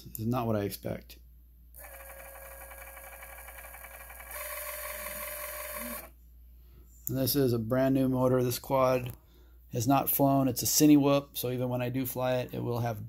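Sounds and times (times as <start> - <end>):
drone motor buzzing whine: 1.8 - 6.1.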